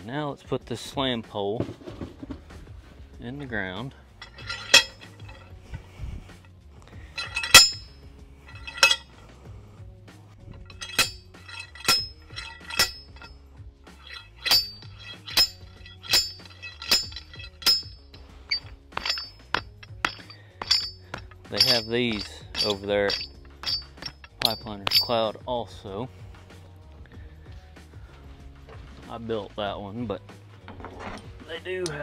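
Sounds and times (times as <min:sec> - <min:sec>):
metal clanks of slam pole: 0:04.2 - 0:05.5, 0:07.2 - 0:07.9, 0:08.5 - 0:09.2, 0:10.6 - 0:13.3, 0:14.0 - 0:25.3.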